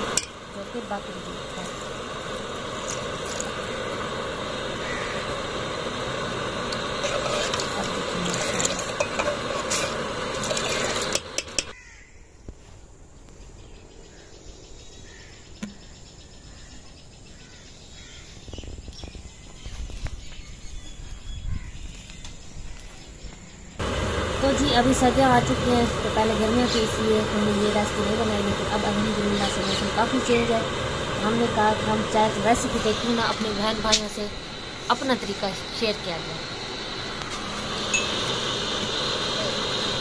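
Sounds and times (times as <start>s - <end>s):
tea bubbling in a pot: 0.0s - 11.7s, 23.8s - 40.0s
quiet outdoor ambience: 0.0s - 40.0s
milk pouring: 1.8s - 11.6s.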